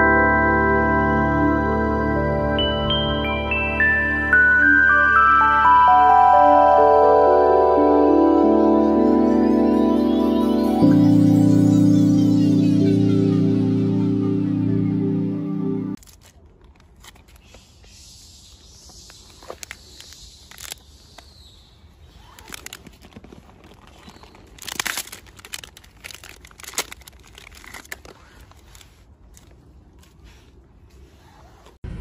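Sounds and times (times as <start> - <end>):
plastic wrapper crinkling: 16.0 - 17.6, 19.4 - 20.9, 22.2 - 30.2.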